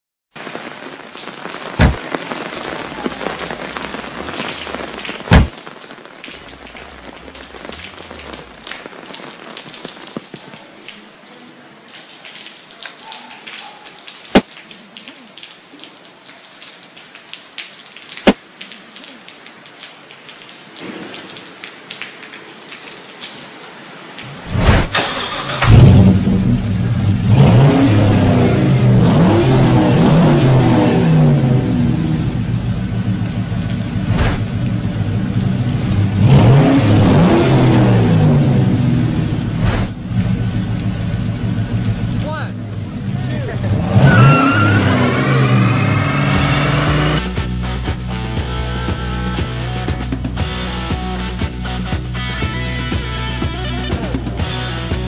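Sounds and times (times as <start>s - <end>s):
steady rain: 0.3s - 55.0s
thunder cracks: 1.6s - 9.3s, 24.3s - 47.3s
car engine starting and running: 2.7s - 5.6s, 6.4s - 8.9s, 24.3s - 51.6s.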